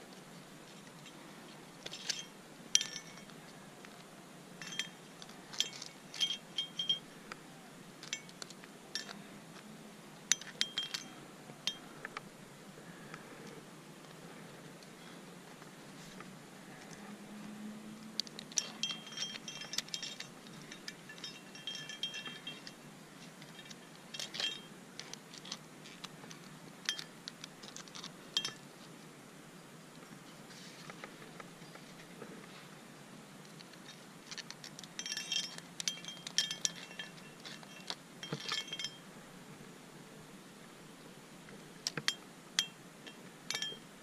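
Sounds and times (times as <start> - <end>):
metal climbing gear clinking: 1.8 - 4.0, 4.6 - 7.3, 8.0 - 9.3, 10.3 - 12.2, 18.2 - 28.8, 33.4 - 39.2, 41.8 - 44.0.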